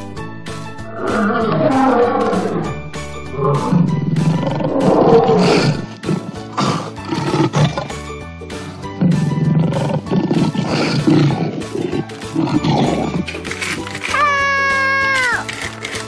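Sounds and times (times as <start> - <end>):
background music with steady beat: 0.0 - 16.0
lion roaring: 0.7 - 8.0, 9.0 - 13.3.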